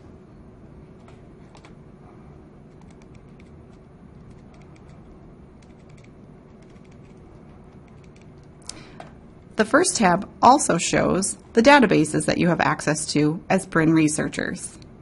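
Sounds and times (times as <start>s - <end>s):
low steady hum: 0.0s - 15.0s
mouse scroll wheel clicking: 2.7s - 8.5s.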